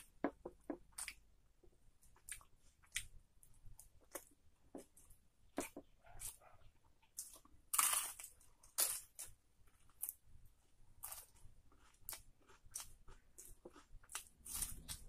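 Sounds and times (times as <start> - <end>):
crunchy chewing: 3.8 - 10.2, 11.0 - 15.0.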